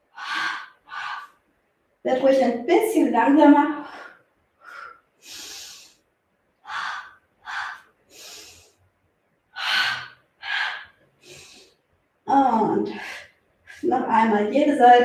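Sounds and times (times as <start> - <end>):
woman breathing hard: 0.0 - 1.5, 3.8 - 8.8, 9.6 - 11.8, 12.9 - 13.9.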